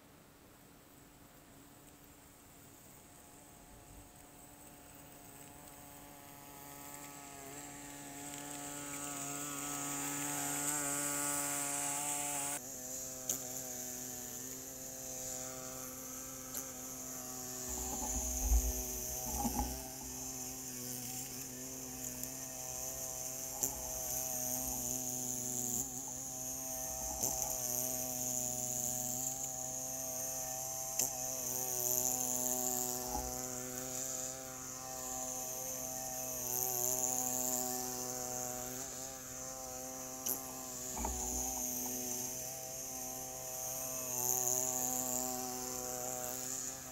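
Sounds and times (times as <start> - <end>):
snowblower engine running: 13.9 - 29.5
low bumps: 17.6 - 20.3.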